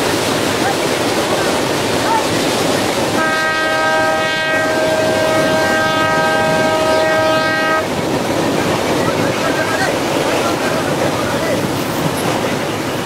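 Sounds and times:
locomotive horn blast: 3.1 - 7.9.

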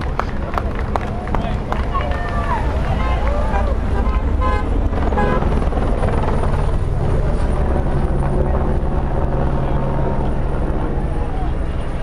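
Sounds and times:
helicopter rotor rumble: 0.0 - 12.0.

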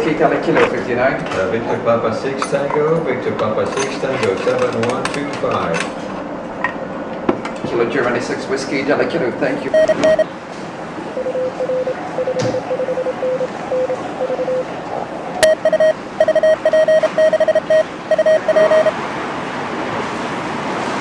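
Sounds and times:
morse code tones: 9.7 - 10.3, 11.2 - 14.7, 15.4 - 19.0.

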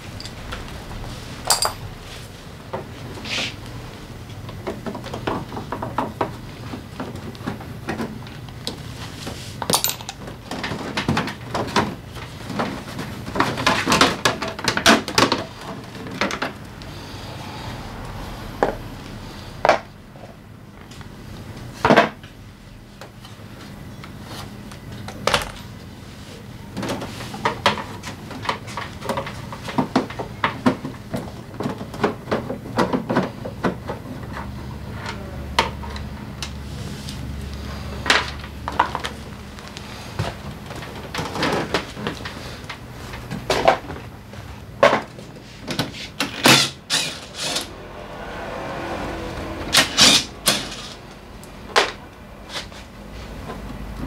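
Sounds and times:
low steady hum: 0.0 - 14.5
hand tools clinking on metal: 1.5 - 1.9, 9.7 - 10.2.

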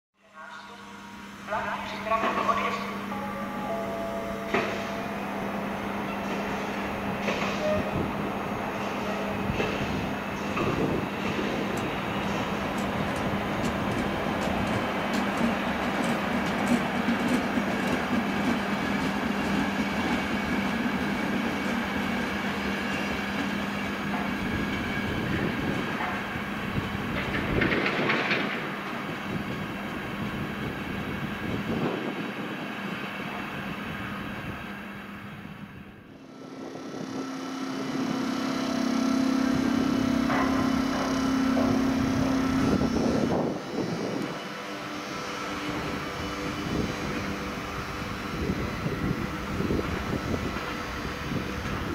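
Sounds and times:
electric locomotive humming: 0.2 - 51.9
train wheels clattering on rails: 6.2 - 8.0, 8.8 - 30.8, 39.5 - 44.6.

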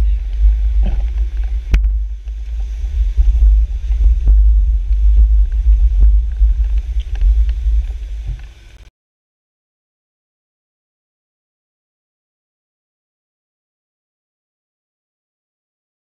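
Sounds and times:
bicycle rumbling over stone paving: 0.0 - 8.9.

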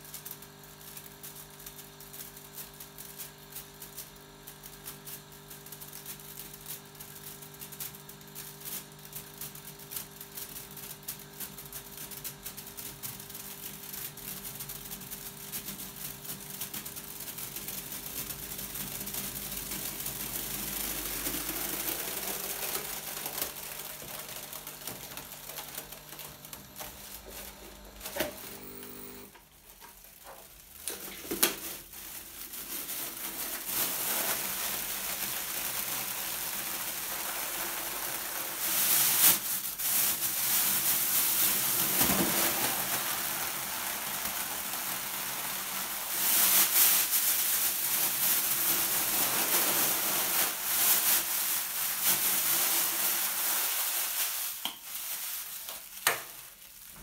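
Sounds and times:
plastic bag crinkling: 13.0 - 57.0.

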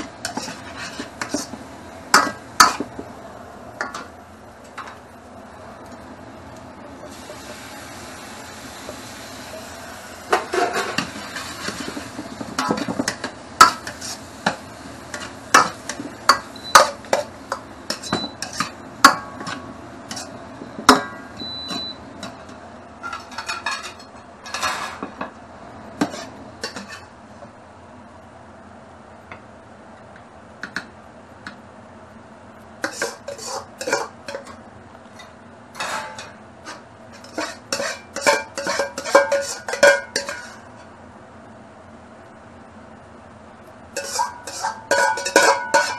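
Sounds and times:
metal ladle scraping in a wok: 0.0 - 1.6, 10.3 - 14.3, 17.9 - 18.8, 19.4 - 20.4, 23.0 - 25.0, 26.0 - 27.1, 32.8 - 34.6, 35.2 - 40.8, 44.0 - 45.9.

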